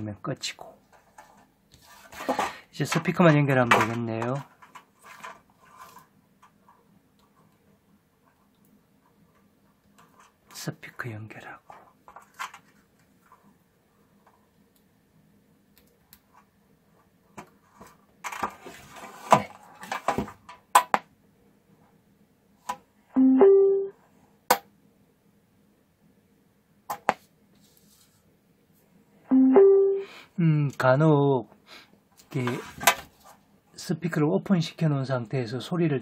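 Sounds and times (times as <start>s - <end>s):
two-note rising beep: 23.2s - 23.9s, 29.3s - 30.1s.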